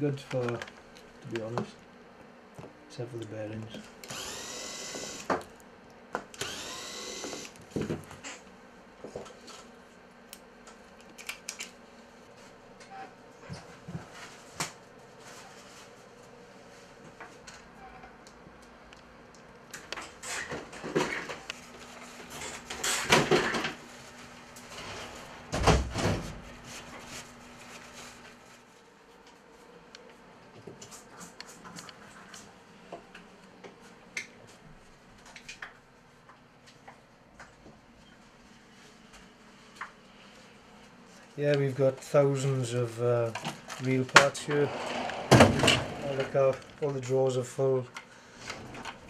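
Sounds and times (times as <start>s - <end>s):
electric screwdriver whirring: 4.0s - 5.3s, 6.4s - 7.6s.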